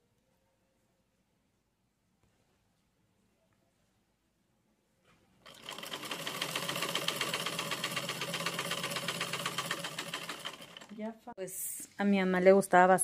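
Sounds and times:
sewing machine stitching: 5.5s - 11.0s.

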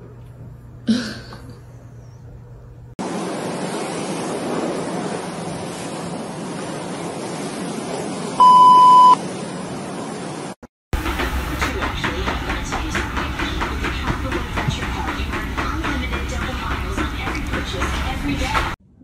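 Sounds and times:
high-pitched censor bleep: 8.4s - 9.2s
rapid clicking: 11.0s - 18.8s.

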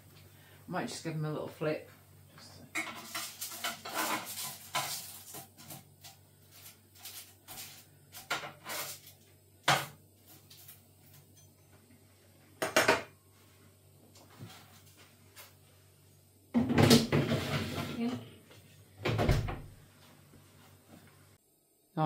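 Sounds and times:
metal slice scraping baking tray: 2.8s - 5.8s.

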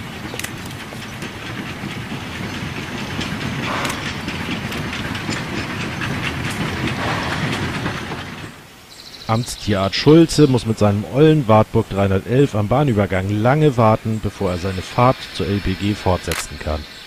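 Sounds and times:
steam locomotive exhaust: 0.0s - 8.8s
wheels clicking over rail joints: 0.0s - 8.8s.

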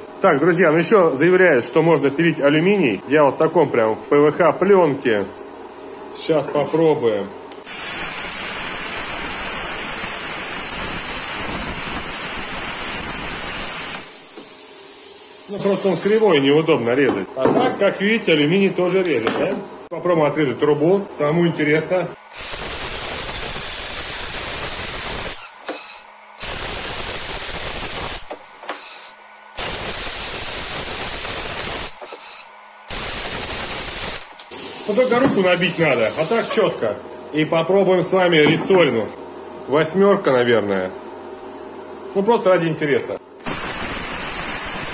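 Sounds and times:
plasma cutter hissing: 7.7s - 16.3s, 22.4s - 36.8s, 43.4s - 44.9s.

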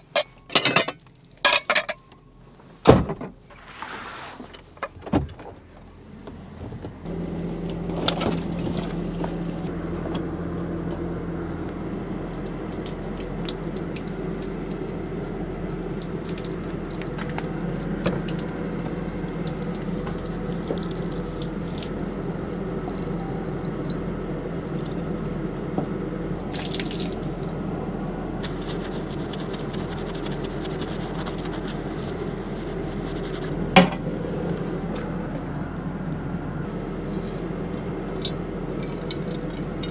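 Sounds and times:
steady low hum: 5.4s - 39.9s
water stream splashing: 26.5s - 27.7s.

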